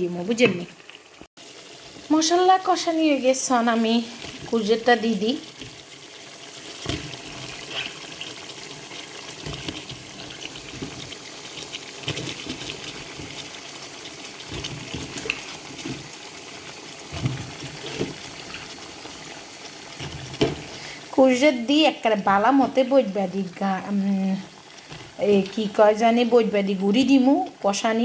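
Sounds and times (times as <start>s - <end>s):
steady sizzle: 0.0s - 28.0s
vegetable chunks thudding into pan: 20.0s - 20.7s.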